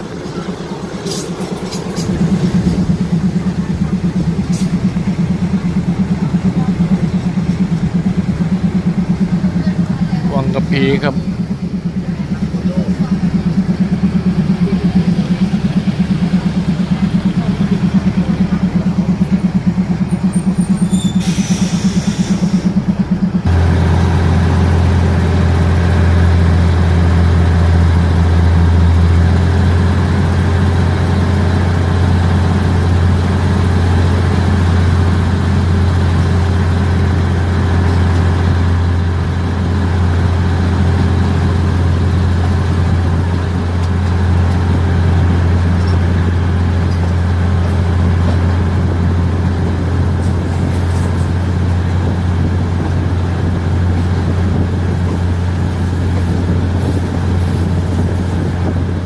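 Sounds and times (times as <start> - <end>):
diesel train engine pulsing: 0.0 - 59.0
brief hiss: 21.0 - 22.7.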